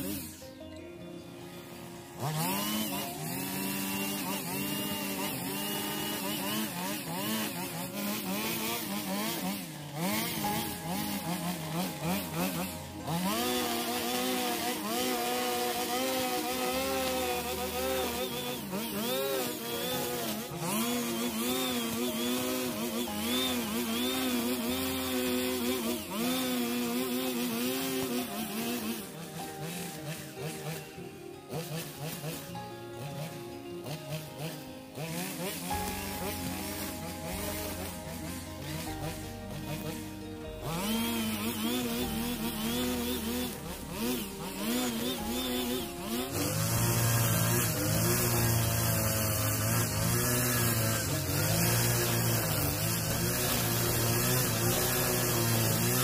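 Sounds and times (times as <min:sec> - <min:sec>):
brush cutter engine revving: 0:00.0 - 0:56.0
trimmer line cutting grass: 0:00.0 - 0:56.0.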